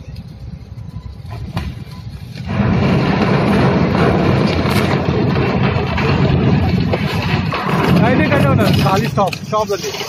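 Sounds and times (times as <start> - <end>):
ship hull crashing into dock: 2.4 - 8.9.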